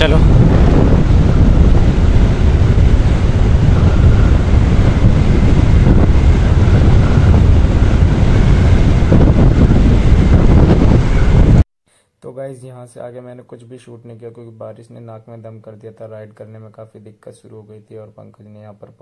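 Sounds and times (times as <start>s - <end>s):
wind buffeting microphone: 0.0s - 11.6s.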